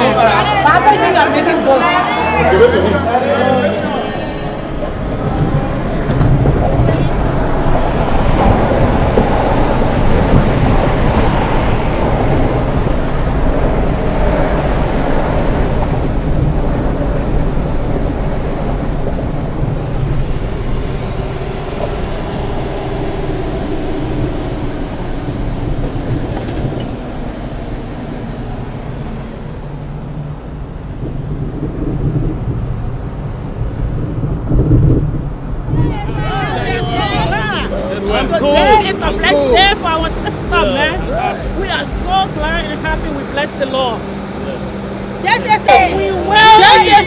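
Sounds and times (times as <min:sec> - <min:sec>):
road and wind noise inside car: 0:00.0 - 0:47.0.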